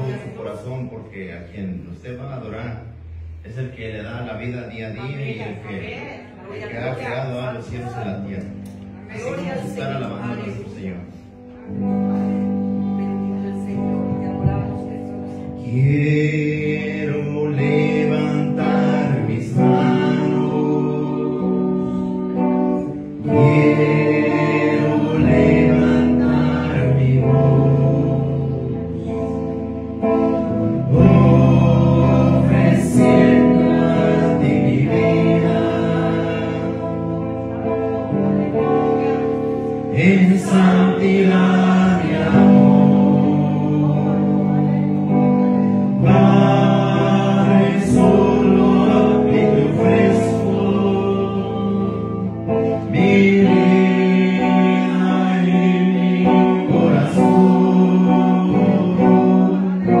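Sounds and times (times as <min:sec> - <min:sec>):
backing music: 0:00.0 - 1:00.0
man singing into a microphone: 0:15.2 - 1:00.0.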